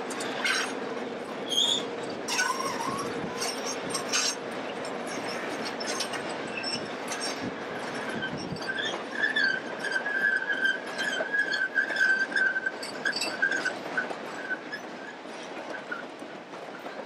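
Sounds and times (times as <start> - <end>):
train wheels rumbling on rail: 0.0 - 17.0
high wheel squeals: 0.2 - 0.8, 1.4 - 4.4, 5.0 - 16.0.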